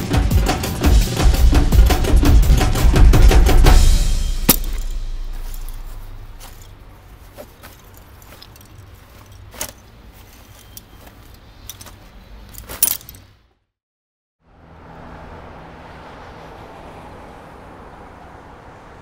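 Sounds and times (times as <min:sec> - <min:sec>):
low steady hum: 0:03.9 - 0:09.3
backpack buckles and straps rattling: 0:04.5 - 0:13.3.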